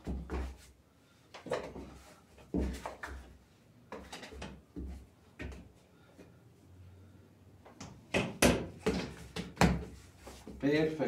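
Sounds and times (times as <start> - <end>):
dough thumping on wooden table: 8.1 - 10.0.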